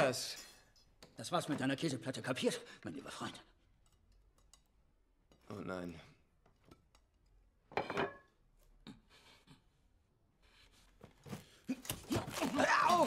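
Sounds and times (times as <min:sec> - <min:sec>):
cutlery scraping on plates: 0:07.7 - 0:08.4.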